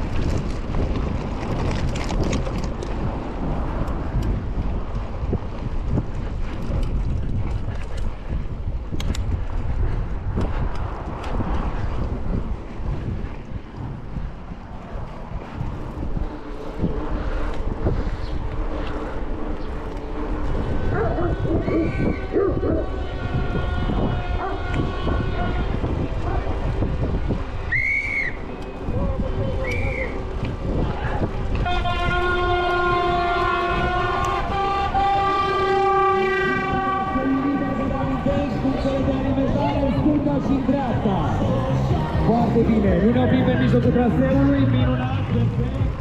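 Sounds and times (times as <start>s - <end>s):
wind buffeting microphone: 0.0s - 46.0s
horn long blast: 19.4s - 26.8s, 31.5s - 41.9s.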